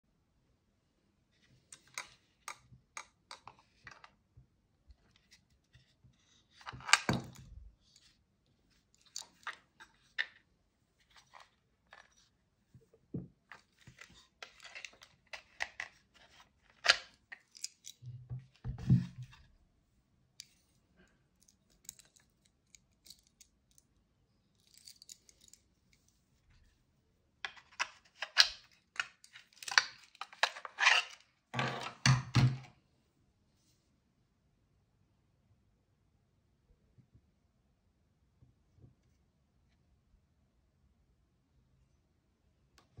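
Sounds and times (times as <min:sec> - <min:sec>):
knife sheath clicks and scrapes: 0:29.5 - 0:31.2.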